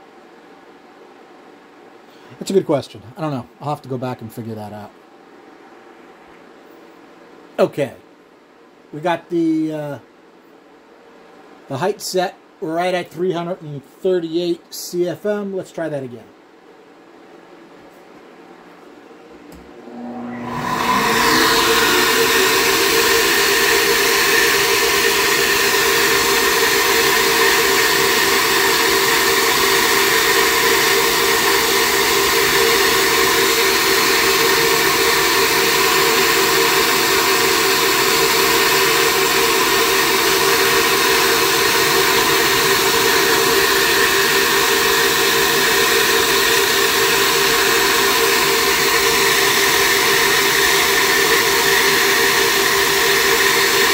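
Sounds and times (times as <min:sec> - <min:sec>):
motors spinning up with whine: 0:19.6 - 0:53.9
loud rush of air: 0:19.7 - 0:53.9.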